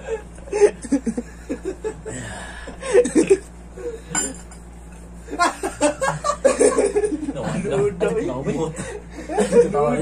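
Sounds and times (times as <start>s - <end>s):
young men laughing: 0.0s - 4.2s, 5.2s - 10.0s
tableware clink: 4.1s - 4.7s.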